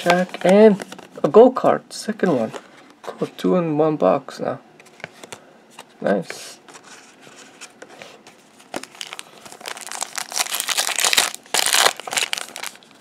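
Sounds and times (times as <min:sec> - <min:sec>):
foil wrapper crinkling: 0:08.6 - 0:13.0.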